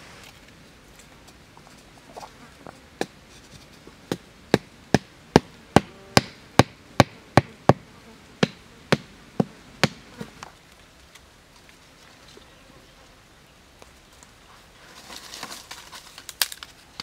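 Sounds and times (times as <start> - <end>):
machete striking wooden stick: 4.1 - 7.8.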